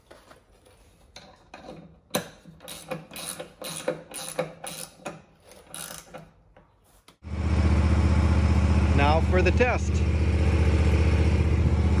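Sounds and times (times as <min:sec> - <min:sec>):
ratchet wrench clicking: 0:02.6 - 0:06.3.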